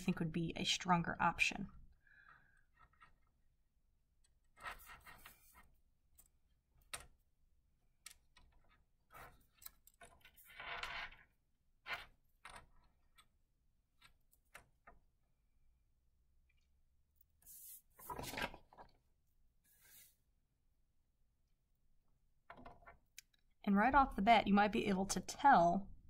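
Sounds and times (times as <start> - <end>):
soft hand rustles: 17.4 - 18.4.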